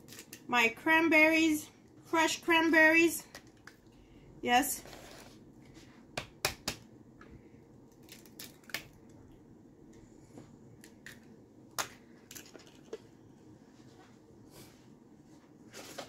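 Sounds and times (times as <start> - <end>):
eggshell cracking and crackling: 7.9 - 9.2.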